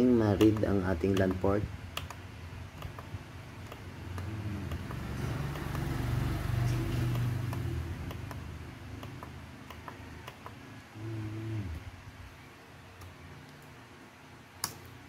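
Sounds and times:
vehicle engine hum: 2.4s - 12.6s.

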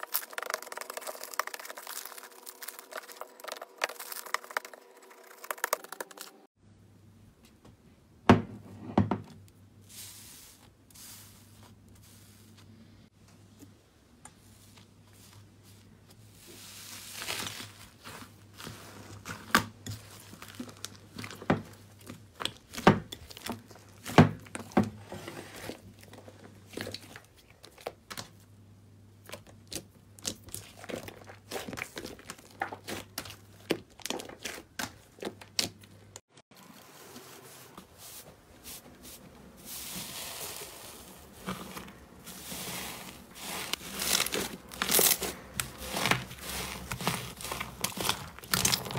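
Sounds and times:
slime crackling and popping: 0.0s - 6.4s, 42.6s - 48.9s
fluffy slime crunching: 0.0s - 6.5s, 14.4s - 28.4s, 29.2s - 48.9s.

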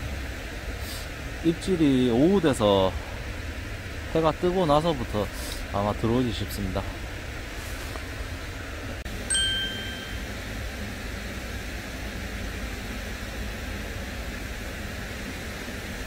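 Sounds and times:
outdoor hiss and low rumble: 0.0s - 16.0s
short bright chime: 9.3s - 10.2s.

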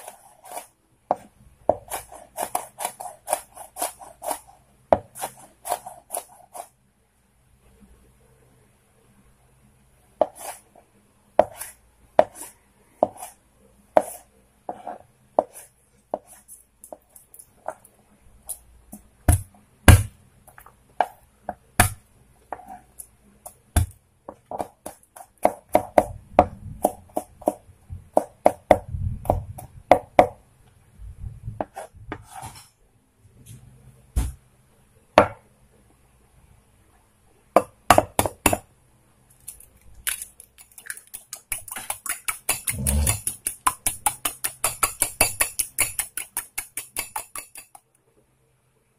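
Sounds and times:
knife chopping on wooden board: 0.0s - 6.7s, 11.4s - 13.4s, 19.3s - 20.1s, 21.0s - 22.8s, 23.8s - 30.4s, 37.6s - 38.6s, 41.5s - 47.8s.

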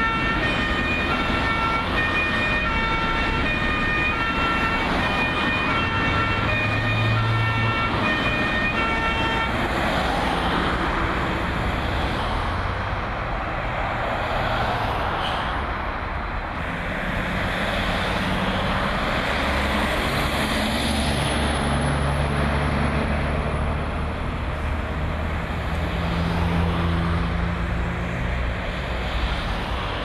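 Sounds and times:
two-tone emergency siren: 0.0s - 10.4s.

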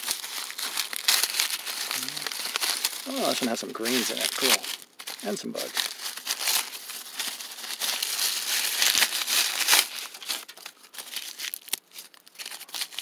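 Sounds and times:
corn husks crackling and tearing: 0.0s - 13.0s.

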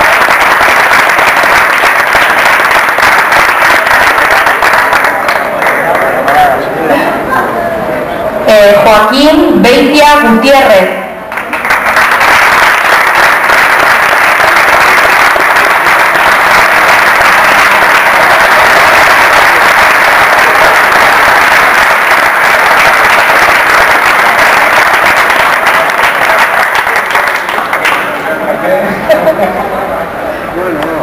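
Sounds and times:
audience applause: 0.0s - 6.7s, 11.3s - 28.8s.

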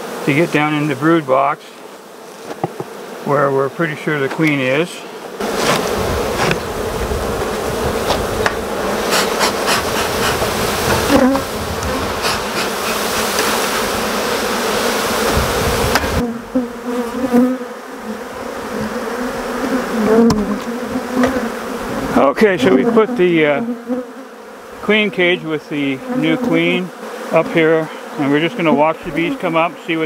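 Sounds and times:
bees buzzing loudly: 0.0s - 30.0s.

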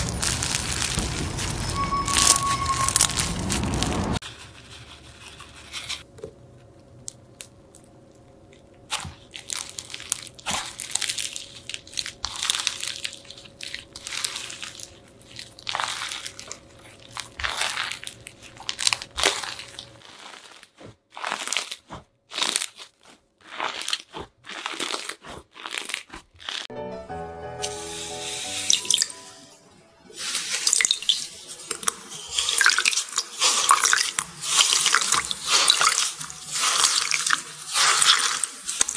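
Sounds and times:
slime crunching crackles: 0.0s - 6.1s, 7.0s - 26.7s, 30.2s - 38.9s
slime sloshing in water: 8.9s - 22.7s, 30.2s - 38.9s.

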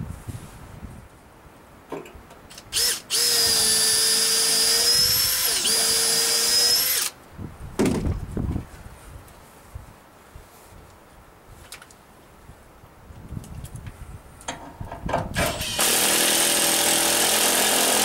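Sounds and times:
cordless drill whining: 2.5s - 7.2s, 15.4s - 18.0s.

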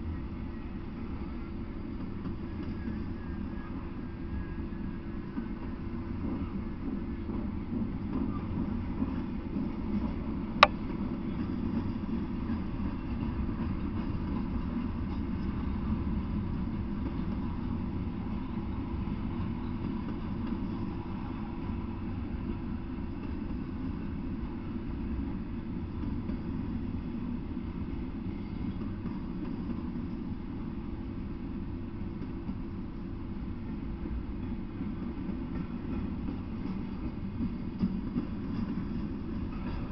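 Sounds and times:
freight train rumbling past: 0.0s - 39.9s.

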